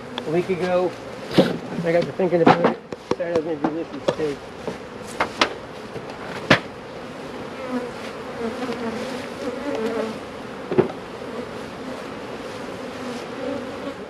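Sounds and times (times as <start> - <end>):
honeybees buzzing: 0.0 - 14.0
sharp knocks: 10.7 - 11.0.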